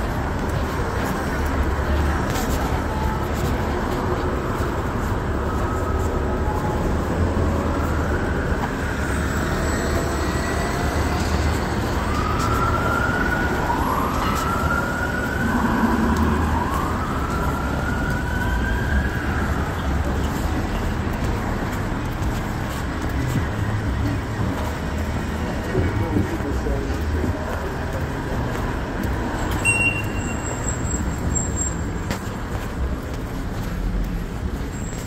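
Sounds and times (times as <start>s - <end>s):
city street traffic rumble: 0.0s - 35.0s
emergency vehicle siren wailing: 0.4s - 22.3s.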